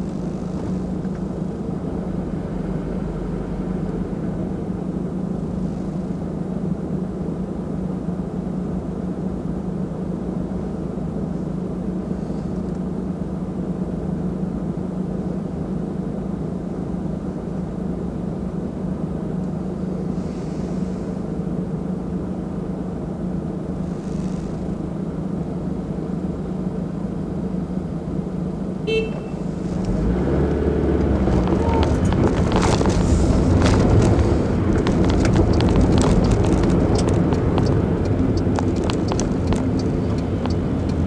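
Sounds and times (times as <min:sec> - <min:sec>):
car engine idling: 0:00.0 - 0:41.0
road noise: 0:00.0 - 0:41.0.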